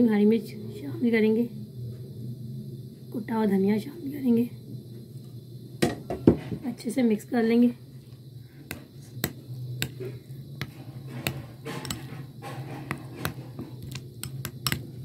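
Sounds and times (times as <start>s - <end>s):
low steady hum: 0.0s - 15.0s
spoon scraping glass bowl: 10.6s - 14.8s.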